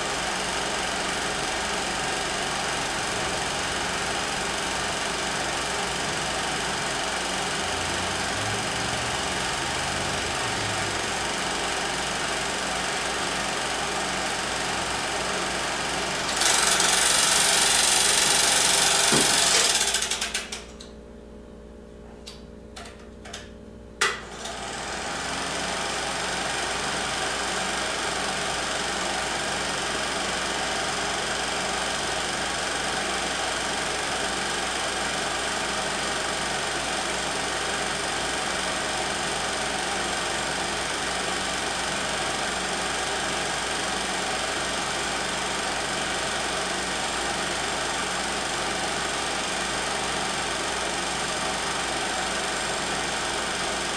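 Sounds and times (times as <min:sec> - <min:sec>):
film projector clatter: 0:00.0 - 0:20.9, 0:22.8 - 0:53.9.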